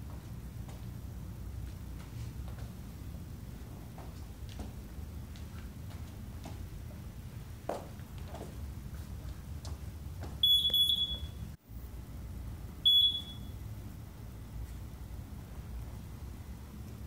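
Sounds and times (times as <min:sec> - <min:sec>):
interval timer beeping: 0:10.4 - 0:11.4, 0:12.9 - 0:13.5.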